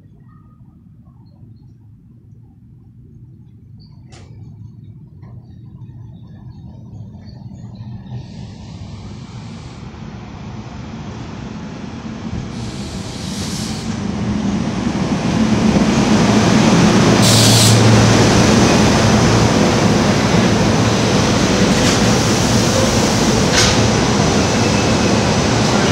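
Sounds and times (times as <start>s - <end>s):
railcar wheel and running noise: 0.0s - 25.9s
brief hiss: 12.6s - 14.0s.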